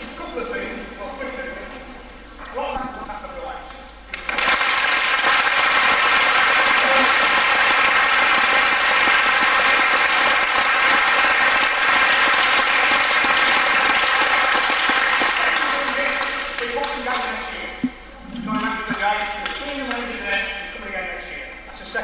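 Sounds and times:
audience of children applauding: 4.1s - 17.3s.

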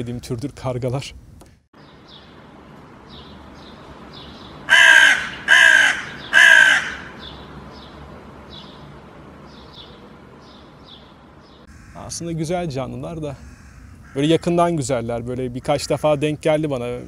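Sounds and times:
small birds chirping: 1.5s - 12.2s
crow cawing: 4.7s - 7.3s, 11.7s - 12.2s, 13.3s - 14.6s, 15.6s - 16.4s.

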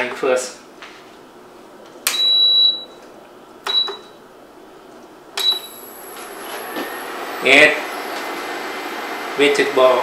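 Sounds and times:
cooktop control panel beeping: 2.1s - 3.0s, 3.6s - 4.2s, 5.4s - 6.2s.

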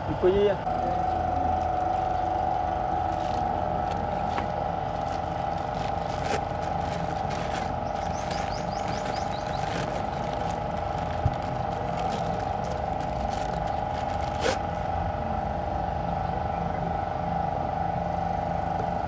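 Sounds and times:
machine humming: 0.6s - 16.5s
plastic bag crinkling: 3.0s - 14.9s.

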